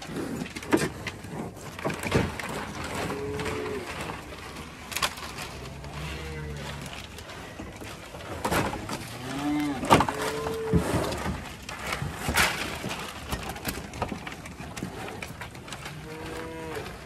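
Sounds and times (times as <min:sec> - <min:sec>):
cattle mooing: 0:02.9 - 0:04.2, 0:05.6 - 0:07.1, 0:08.8 - 0:11.2, 0:15.9 - 0:17.0.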